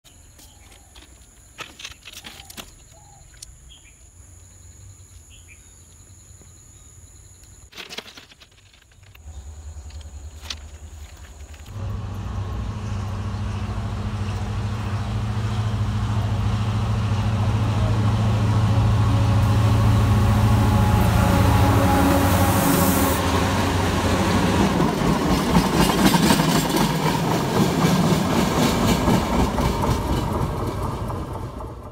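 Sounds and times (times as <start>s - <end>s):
train engine drone: 9.2s - 31.9s
train wheels clattering over rails: 23.2s - 31.9s.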